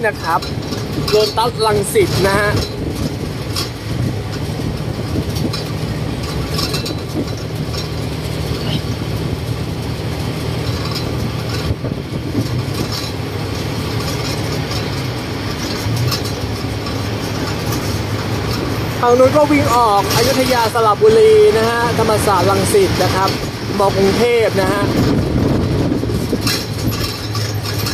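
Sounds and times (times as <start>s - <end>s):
light rattles: 0.0s - 27.9s
road and wind noise: 0.0s - 27.9s
truck engine hum: 0.0s - 27.9s.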